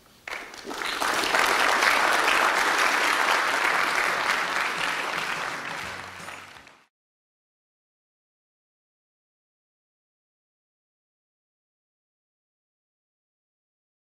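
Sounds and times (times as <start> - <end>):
audience applauding: 0.2 - 6.9.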